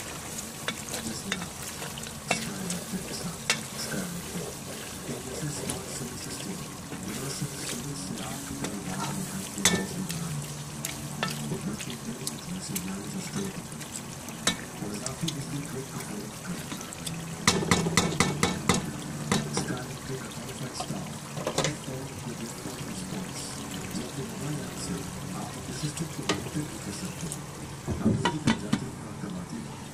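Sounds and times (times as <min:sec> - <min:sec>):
vegetables sizzling in oil: 0:00.0 - 0:28.0
wooden spoon knocking pot: 0:17.5 - 0:19.7.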